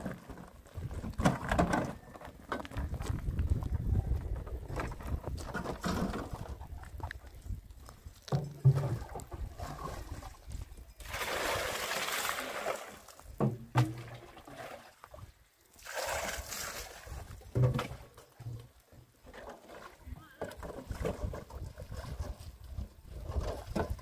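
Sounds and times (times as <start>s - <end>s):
water pouring and splashing: 8.3s - 24.0s.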